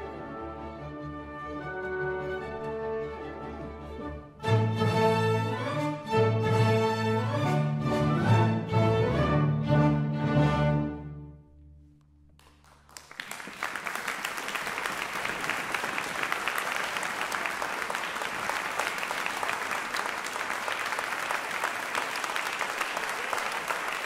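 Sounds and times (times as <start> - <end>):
audience applause: 12.4 - 24.0.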